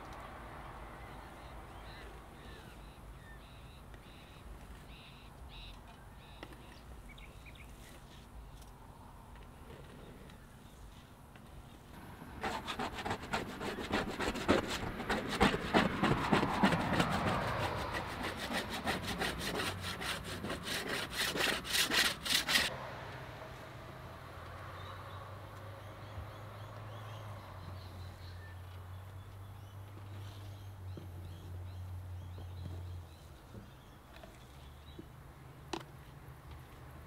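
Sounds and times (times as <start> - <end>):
paint scraper scraping paint: 12.4 - 22.7.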